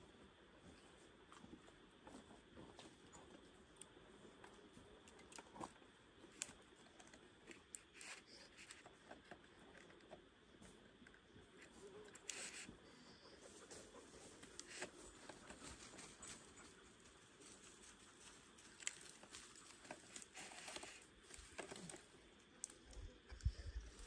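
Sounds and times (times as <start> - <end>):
scratching and rustling on tree: 5.2 - 10.8, 11.6 - 12.7, 13.4 - 24.0.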